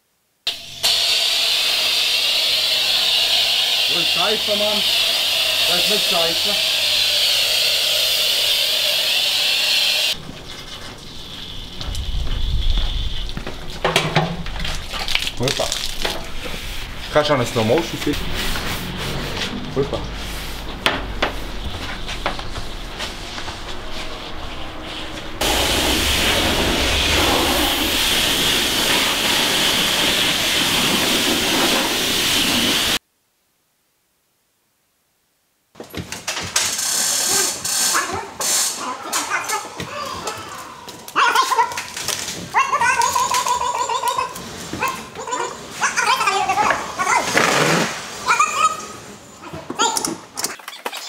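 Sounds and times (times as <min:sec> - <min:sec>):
pressure washer spraying: 0:00.5 - 0:11.7, 0:14.7 - 0:33.0
low rumble: 0:10.2 - 0:31.6.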